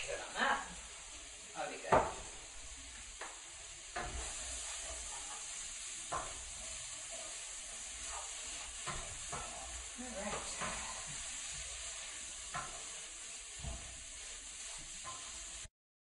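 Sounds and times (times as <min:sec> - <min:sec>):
food sizzling in skillet: 0:00.0 - 0:15.7
utensil knocking and scraping pan: 0:03.2 - 0:15.7.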